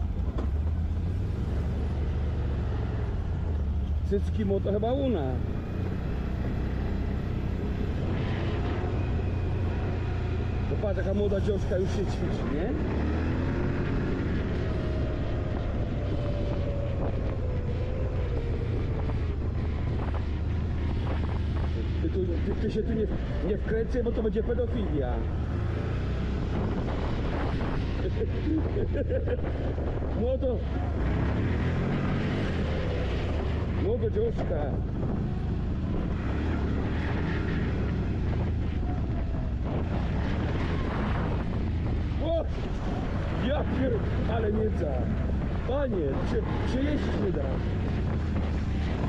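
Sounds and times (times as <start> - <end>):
quad bike engine rumble: 0.0 - 49.0
wind on microphone: 12.2 - 23.6, 25.2 - 44.3, 44.9 - 49.0.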